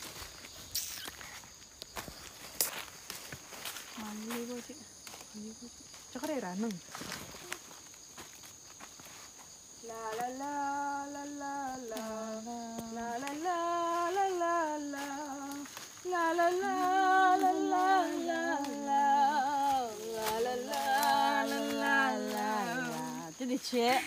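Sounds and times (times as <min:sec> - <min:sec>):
woman humming a slow tune: 0:09.8 - 0:24.0.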